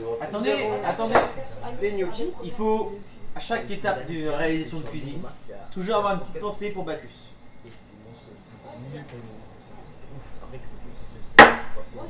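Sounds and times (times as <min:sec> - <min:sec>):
crickets trilling: 0:00.0 - 0:12.0
faint voices murmuring: 0:00.0 - 0:12.0
sharp loud knock: 0:11.4 - 0:11.8.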